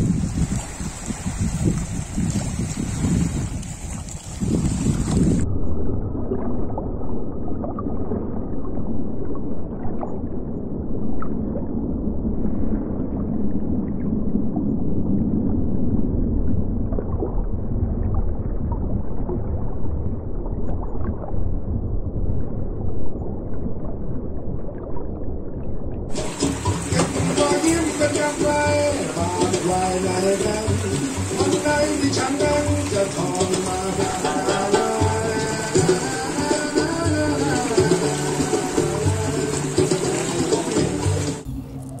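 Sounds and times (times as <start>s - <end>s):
muffled underwater rumble: 0.0s - 42.0s
wind and sea noise: 0.0s - 42.0s
faint clicks underwater: 3.5s - 5.3s.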